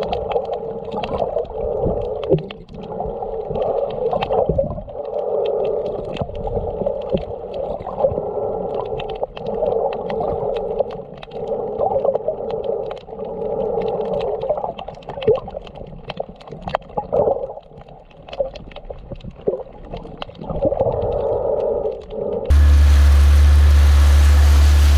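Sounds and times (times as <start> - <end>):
sharp clicks and crackles: 0.0 - 22.6
muffled underwater hum: 20.7 - 24.9
loud steady low rumble: 22.5 - 24.9.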